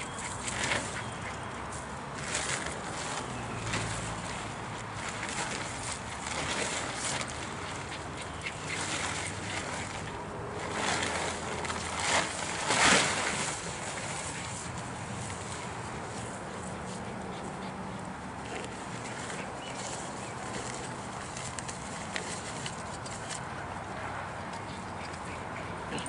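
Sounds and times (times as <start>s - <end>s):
tent fabric rustling and flapping: 2.2s - 7.9s, 8.8s - 16.4s, 18.8s - 23.4s.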